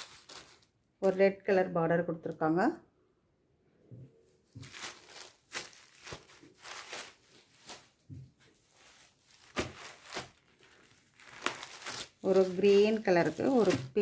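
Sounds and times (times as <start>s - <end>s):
cloth rustling and swishing: 4.5s - 10.4s.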